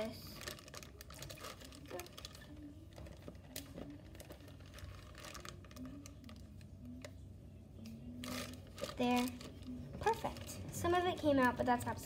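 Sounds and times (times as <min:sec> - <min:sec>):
plastic bag crinkling: 0:00.0 - 0:06.7, 0:08.2 - 0:10.9.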